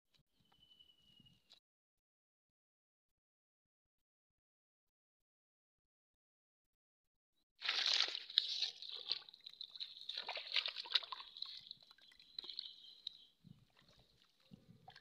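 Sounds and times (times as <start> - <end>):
muddy water splashing: 7.6 - 15.0.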